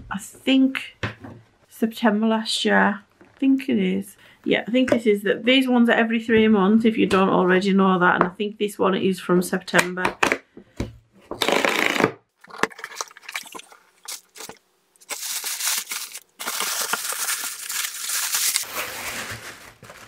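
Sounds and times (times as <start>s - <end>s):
tissue paper crinkling and rustling: 12.9s - 20.0s.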